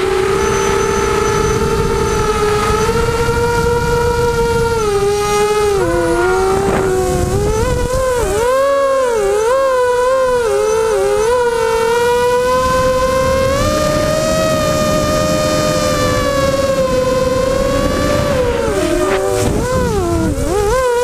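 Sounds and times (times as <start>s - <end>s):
drone motors whining: 0.0s - 21.0s
wind rumble on microphone: 0.0s - 21.0s.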